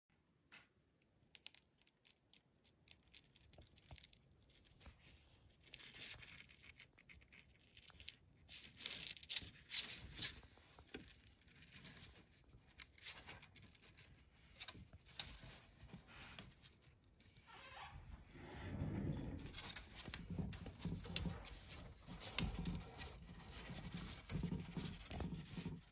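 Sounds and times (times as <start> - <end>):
puppy claws scuffling on floor: 19.4 - 25.9.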